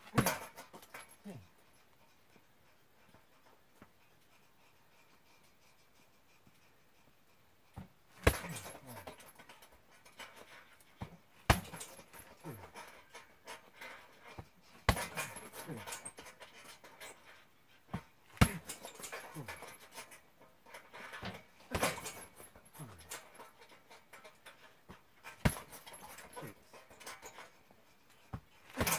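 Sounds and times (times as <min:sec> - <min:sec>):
hard panting breaths: 0:00.9 - 0:28.9
kicks on punching bag: 0:08.2 - 0:08.7, 0:11.0 - 0:12.0, 0:14.9 - 0:15.4, 0:18.4 - 0:18.8, 0:21.7 - 0:22.2, 0:25.4 - 0:25.8
punching bag creaking: 0:28.7 - 0:28.9.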